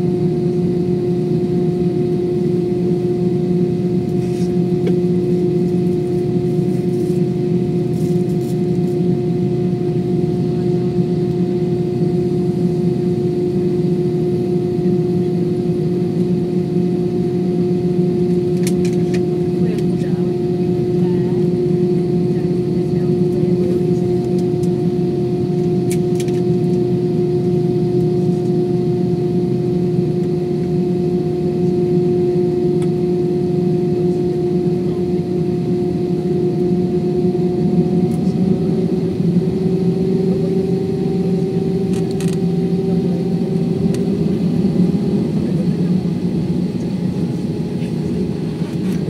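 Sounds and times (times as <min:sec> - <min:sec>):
jet engines droning: 0:00.0 - 0:49.0.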